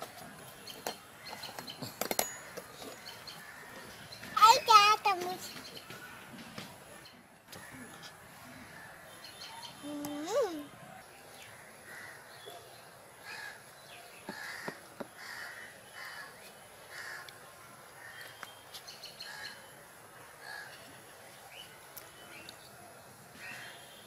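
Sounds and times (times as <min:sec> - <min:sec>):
crows cawing: 0:07.5 - 0:08.9, 0:11.5 - 0:12.3, 0:13.2 - 0:13.6, 0:14.3 - 0:17.3, 0:20.4 - 0:20.8.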